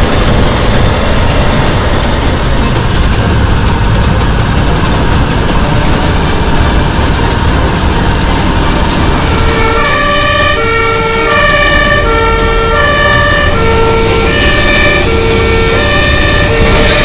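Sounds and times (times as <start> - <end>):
loud steady rumble: 0.0 - 17.0
two-tone emergency siren: 9.2 - 17.0.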